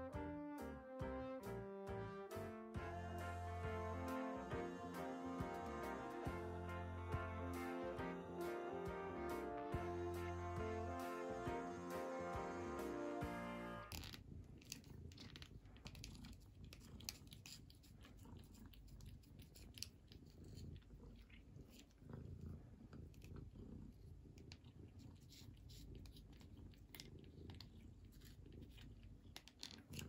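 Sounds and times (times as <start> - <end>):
cat licking and smacking: 14.6 - 22.2.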